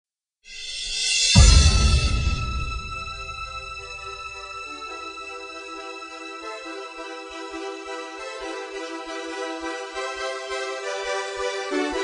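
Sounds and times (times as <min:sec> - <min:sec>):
deep bass pulse: 0:01.2 - 0:04.5.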